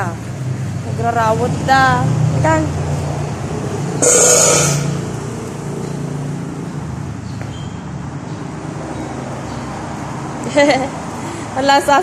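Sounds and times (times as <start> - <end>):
vehicle engine running: 0.0 - 7.3
rush of noise: 4.0 - 5.4.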